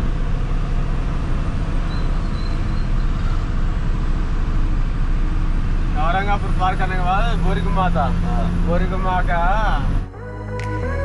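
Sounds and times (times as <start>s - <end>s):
truck engine rumbling: 0.0s - 11.0s.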